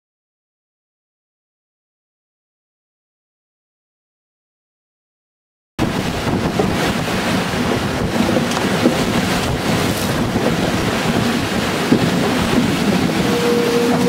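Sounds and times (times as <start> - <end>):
sea water rushing along hulls: 5.8 - 14.0
wind buffeting microphone: 5.8 - 14.0.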